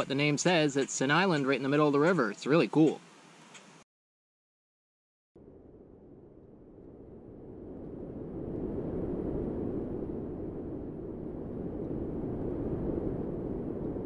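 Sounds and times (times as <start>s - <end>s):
low rushing noise: 5.4s - 14.0s.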